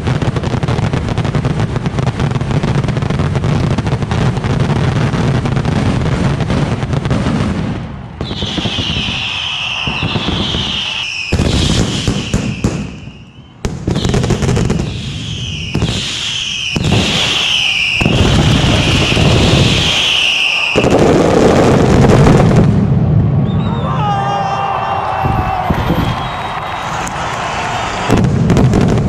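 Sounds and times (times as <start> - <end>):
firecracker bangs: 0.0 - 23.6, 24.7 - 29.0
falling whistles: 8.2 - 21.3, 23.4 - 28.2.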